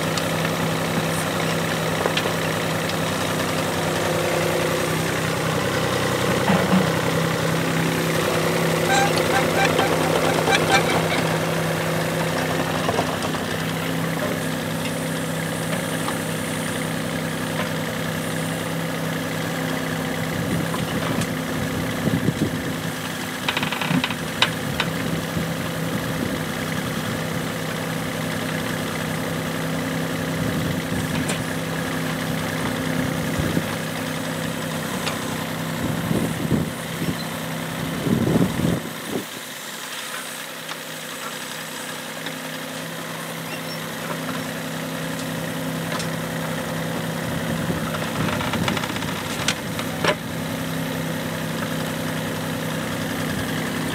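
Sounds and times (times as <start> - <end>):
excavator diesel engine: 0.0 - 53.9
bucket scraping and knocking dirt: 6.1 - 7.2.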